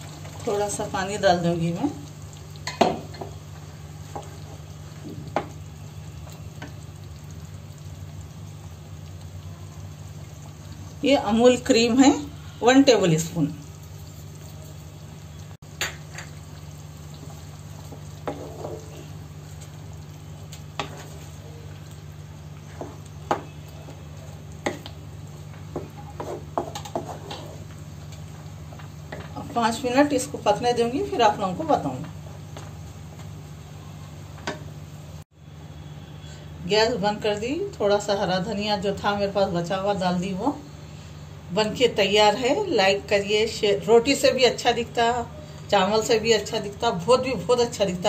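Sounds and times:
curry simmering in a wok: 0.0s - 48.0s
wooden spatula scraping a pan: 18.2s - 19.0s, 25.6s - 27.7s
wooden spatula knocking on pan: 22.8s - 23.6s, 25.7s - 27.2s.

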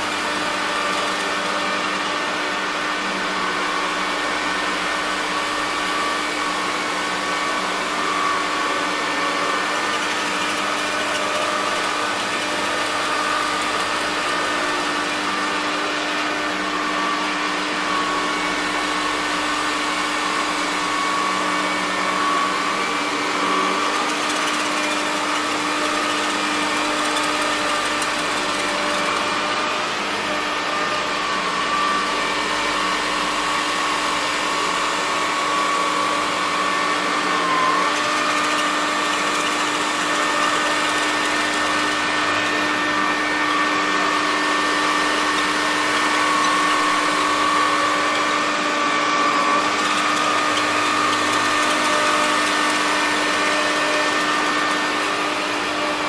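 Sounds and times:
vacuum cleaner running: 0.0s - 56.0s
vacuum nozzle pushed over carpet: 0.7s - 56.0s.

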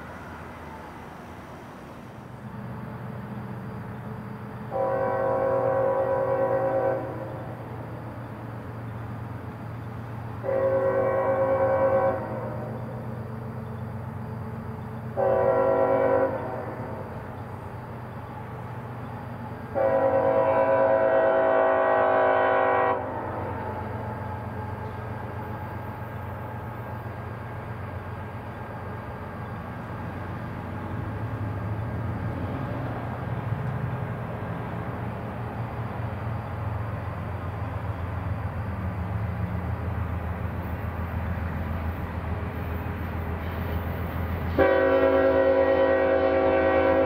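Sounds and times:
locomotive rumble with rail noise: 0.0s - 47.0s
locomotive air horn: 4.7s - 7.6s, 10.4s - 12.8s, 15.2s - 17.0s, 19.7s - 24.5s, 44.4s - 47.0s.

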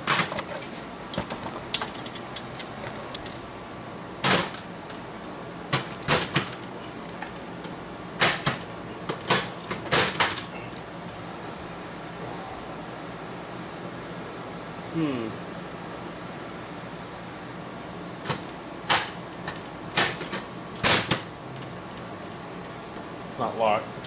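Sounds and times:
steady low hum: 0.0s - 24.0s
metal door and latch clicks: 1.1s - 2.7s.

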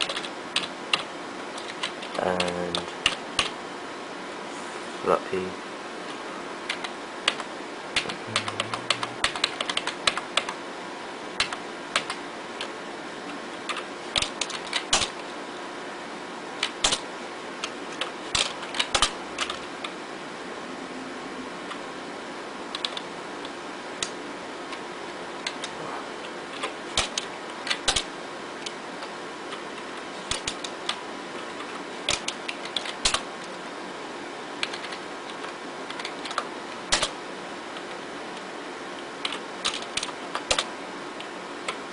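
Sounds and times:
computer keyboard keys clicking: 0.0s - 3.5s, 6.7s - 10.6s, 11.4s - 12.7s, 13.7s - 15.1s, 16.6s - 17.0s, 17.6s - 19.6s, 22.7s - 23.0s, 26.5s - 28.8s, 30.2s - 31.0s, 31.7s - 33.2s, 34.6s - 37.1s, 39.3s - 40.7s
steady hum: 0.0s - 41.9s.

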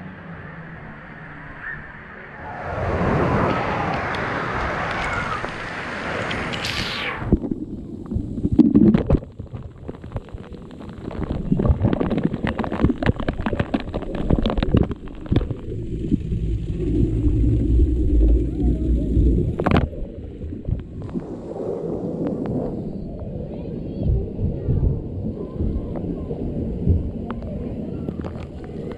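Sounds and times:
low rumble: 0.0s - 28.9s
rushing water in slide tube: 2.3s - 28.9s
splash into pool: 2.4s - 7.8s.

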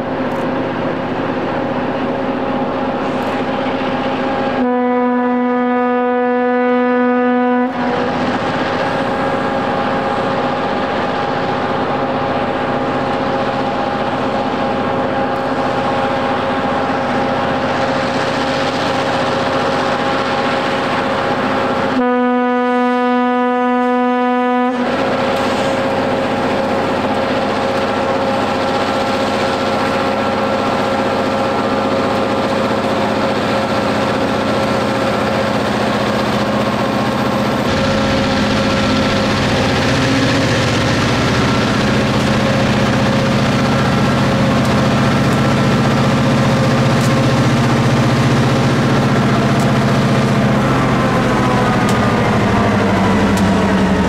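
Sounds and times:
diesel locomotives passing: 0.0s - 54.0s
train horn blasts: 4.5s - 8.2s, 21.9s - 25.1s
snow plow blowing snow: 23.5s - 54.0s.

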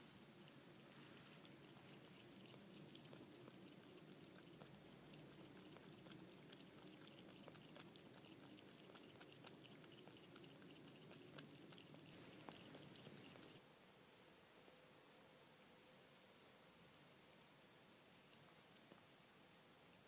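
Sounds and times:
cat lapping water: 0.4s - 13.6s.

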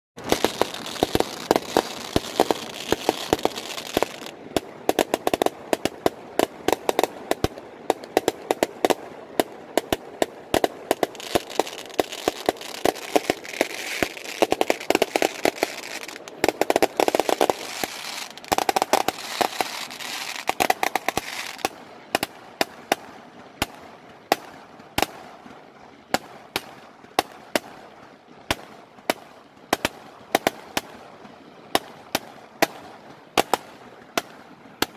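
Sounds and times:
fireworks bangs: 0.2s - 25.3s
fireworks crackle: 0.2s - 34.9s.

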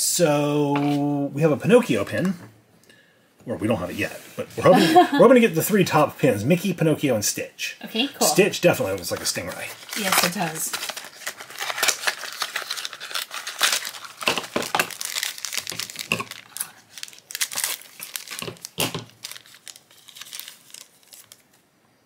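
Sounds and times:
foil packaging crinkling and tearing: 8.7s - 21.6s.

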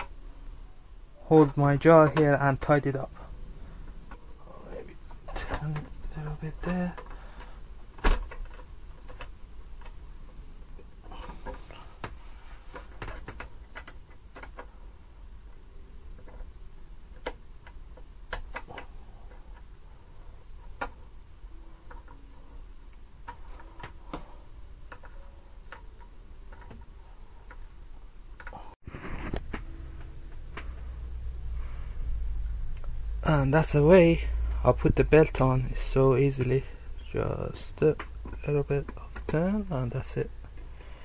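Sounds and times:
low hum: 24.3s - 38.4s.

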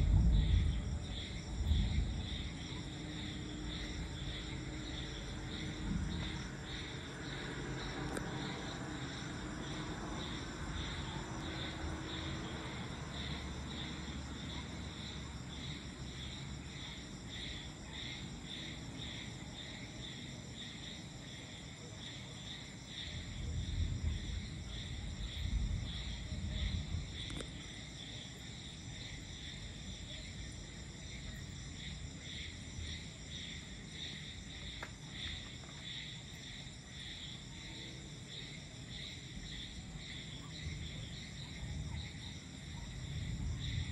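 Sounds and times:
distant thunder rumbling: 0.0s - 7.5s, 23.2s - 27.4s
crickets chirping: 0.0s - 43.9s.

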